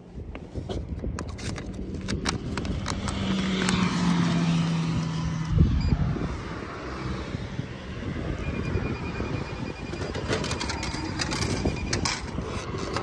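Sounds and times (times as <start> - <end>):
banknote acceptor motor humming: 8.4 - 13.0.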